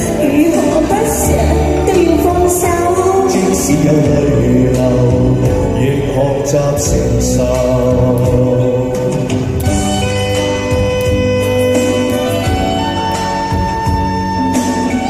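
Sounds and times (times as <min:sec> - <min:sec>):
man and woman singing pop duet: 0:00.0 - 0:09.8
backing track with steady beat: 0:00.0 - 0:15.0.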